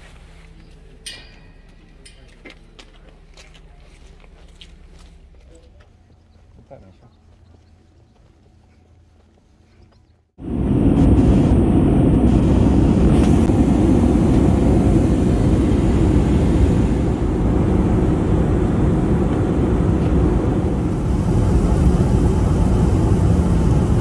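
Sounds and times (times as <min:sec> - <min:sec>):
airliner cabin engine noise: 0:10.4 - 0:24.0.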